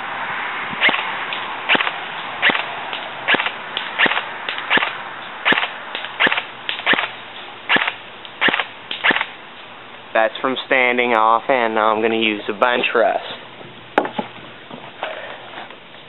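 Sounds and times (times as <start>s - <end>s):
airsoft rifle firing single shots: 1.7s - 2.7s, 3.3s - 9.3s.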